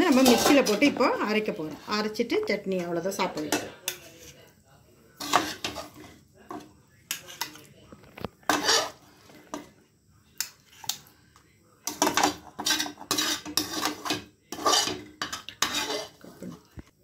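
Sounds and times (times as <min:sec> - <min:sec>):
spoon scraping metal pan: 0:00.0 - 0:04.5, 0:05.2 - 0:07.7, 0:08.4 - 0:09.7, 0:11.9 - 0:16.6.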